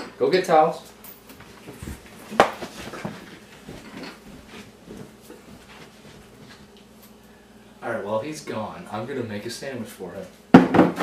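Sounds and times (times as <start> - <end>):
items knocking and rustling on counter: 1.7 - 4.2, 10.5 - 11.0.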